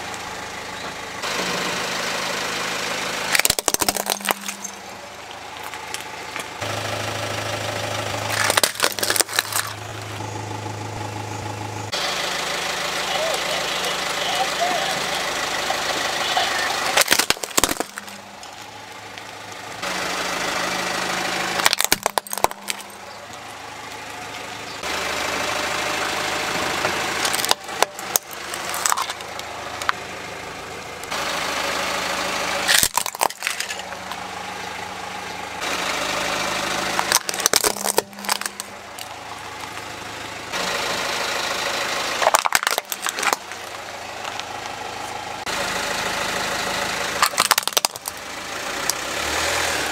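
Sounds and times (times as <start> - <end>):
car engine idling: 0.0 - 49.9
plastic toys cracking under tyre: 3.3 - 4.8, 8.3 - 10.0, 16.9 - 19.3, 21.6 - 23.4, 27.2 - 30.0, 32.7 - 34.2, 36.8 - 39.8, 42.2 - 44.5, 47.2 - 48.2.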